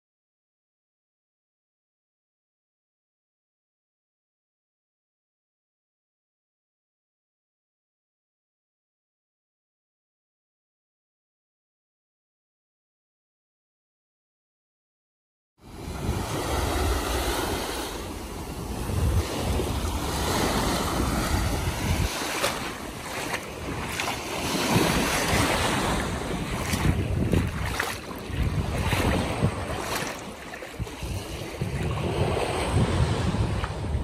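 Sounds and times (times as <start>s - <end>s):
waves washing over sand: 15.6s - 34.0s
wind buffeting microphone: 15.8s - 34.0s.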